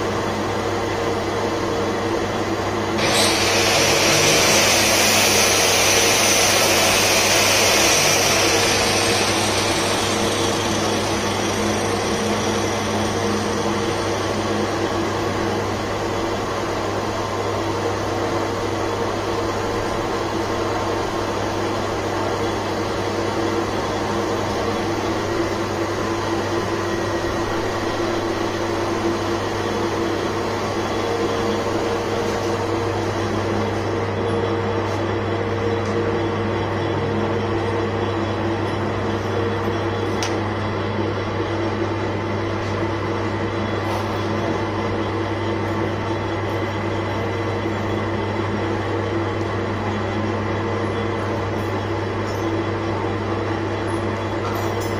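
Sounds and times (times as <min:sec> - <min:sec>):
lathe motor hum: 0:00.0 - 0:54.4
lathe tool cutting hiss: 0:03.0 - 0:15.0.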